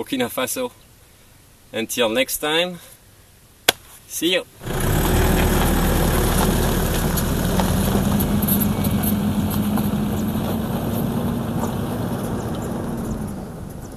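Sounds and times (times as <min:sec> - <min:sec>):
pickup truck driving away: 0:04.6 - 0:13.9.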